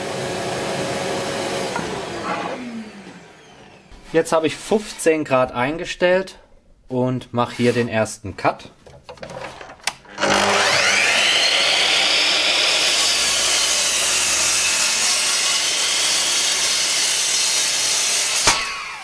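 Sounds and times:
mitre saw cutting wood: 0.0s - 5.4s, 10.1s - 19.0s.

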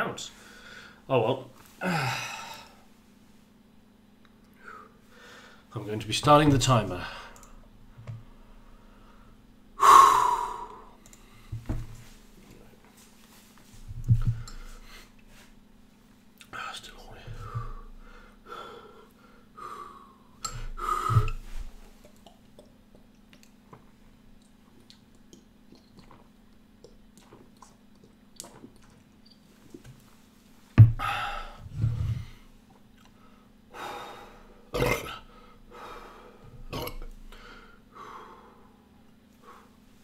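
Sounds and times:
man swallowing: 20.4s - 23.1s, 34.8s - 35.3s, 36.7s - 37.1s
man burping: 34.8s - 35.3s, 36.7s - 37.1s.

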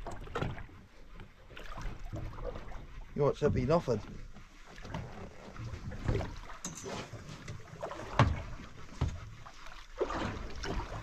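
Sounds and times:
water slapping against a hull: 0.0s - 11.0s.

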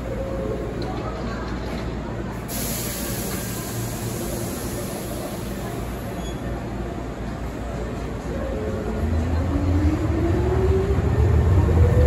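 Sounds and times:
train low hum: 0.0s - 12.0s
air brakes hissing: 2.5s - 6.5s.

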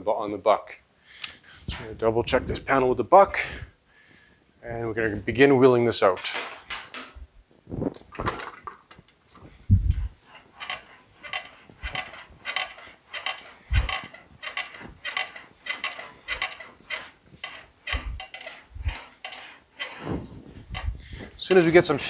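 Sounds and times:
sheet metal rolling and rattling: 8.1s - 22.0s.

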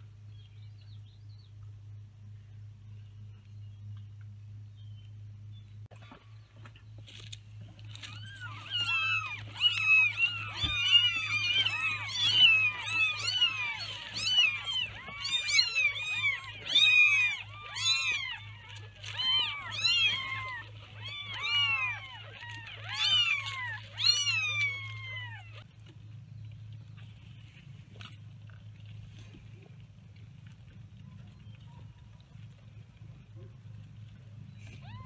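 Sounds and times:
kittens mewing: 7.9s - 25.6s.

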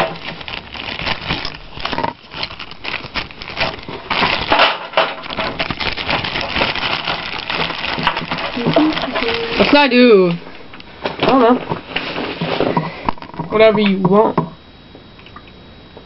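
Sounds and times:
plastic bag crinkling: 0.0s - 10.5s.

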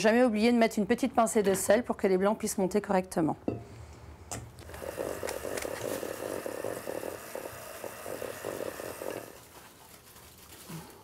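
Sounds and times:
electric hand mixer whirring: 4.6s - 9.4s.

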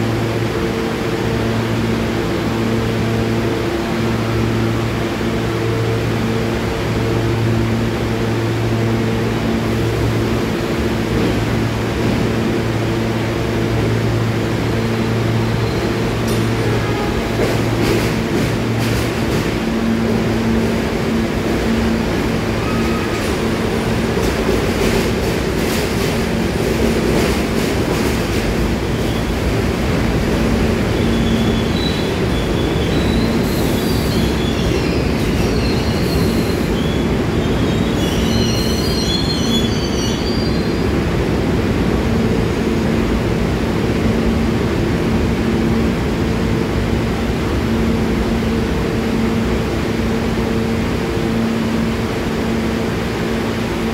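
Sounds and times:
subway train rolling past: 0.0s - 53.9s
wheels squealing: 31.0s - 40.8s.

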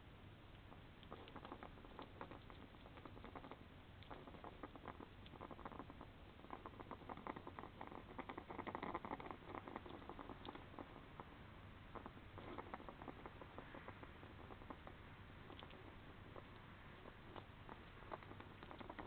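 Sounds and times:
hedgehog clicks and scratches: 0.5s - 11.3s, 12.0s - 19.0s.

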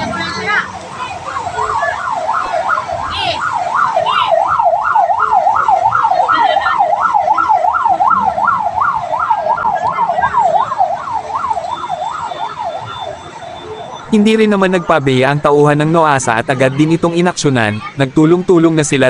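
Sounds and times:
siren on fast yelp: 0.0s - 16.4s.

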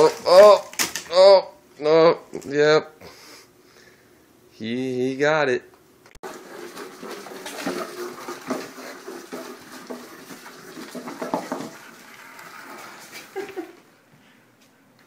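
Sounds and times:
box scraping on wooden floor: 6.2s - 13.8s.

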